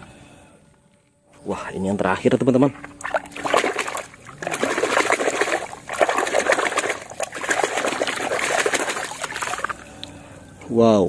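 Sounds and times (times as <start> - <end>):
water splashing and sloshing: 2.4 - 10.2.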